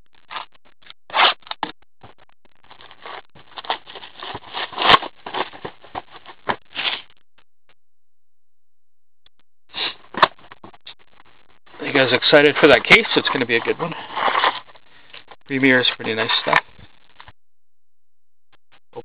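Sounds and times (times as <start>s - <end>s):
shrink wrap tearing and crinkling: 2.8s - 5.6s.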